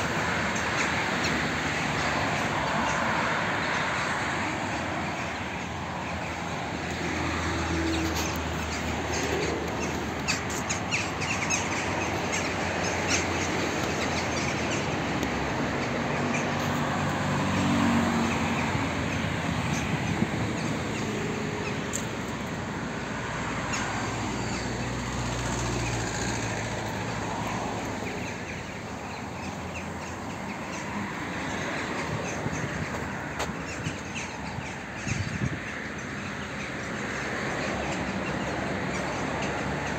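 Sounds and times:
passing vehicle engines: 0.0s - 39.9s.

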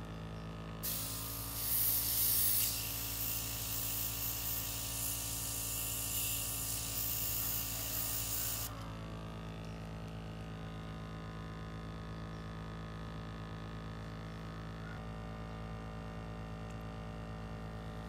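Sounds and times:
airbrush hissing: 0.8s - 8.8s.

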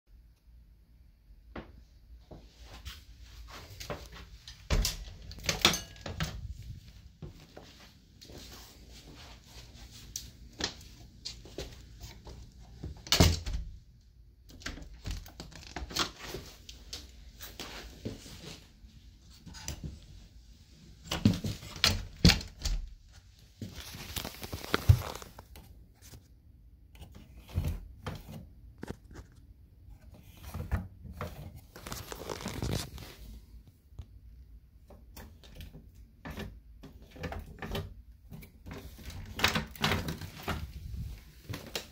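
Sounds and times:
door clicks and knocks: 13.0s - 13.7s.

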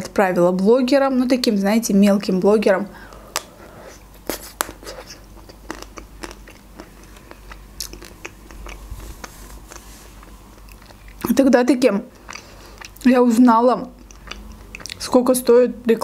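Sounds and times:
chewing: 3.1s - 11.3s, 12.1s - 13.1s, 13.9s - 15.0s.

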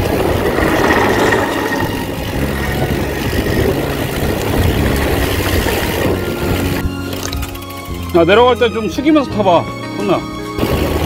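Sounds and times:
wind on microphone: 0.0s - 6.8s.

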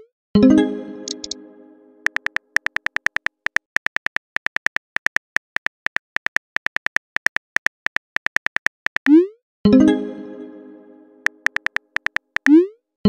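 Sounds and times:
keyboard typing clicks: 1.0s - 1.4s, 2.0s - 9.2s, 11.2s - 12.6s.

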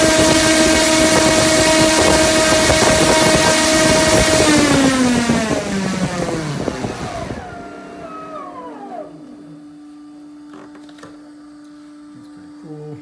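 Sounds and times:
electric motor whine spooling down: 0.0s - 10.4s
steady hum: 0.0s - 13.0s.

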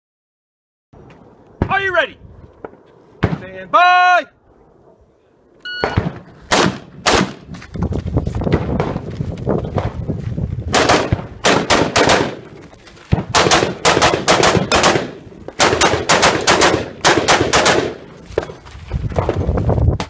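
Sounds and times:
rapid rifle fire: 5.8s - 7.4s, 10.7s - 12.4s, 13.2s - 18.0s.

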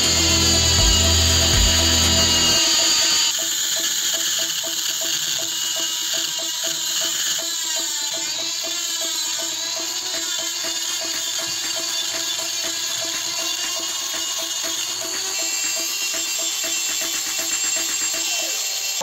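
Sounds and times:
heavy low hum: 0.0s - 2.6s
background music with a beat: 0.0s - 18.3s
rotary grinder whining on steel: 0.0s - 19.0s.

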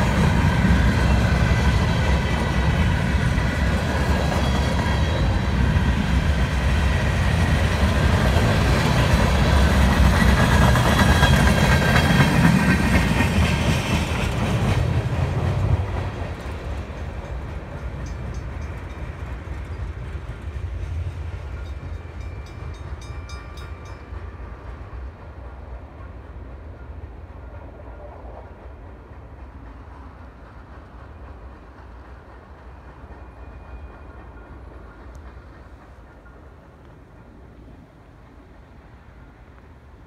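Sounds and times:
freight train wheels clattering: 0.0s - 26.2s.

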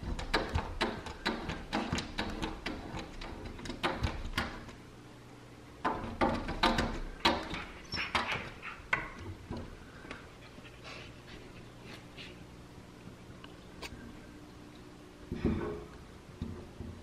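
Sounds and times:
dogs pawing at glass door: 0.0s - 4.8s, 5.8s - 9.8s.

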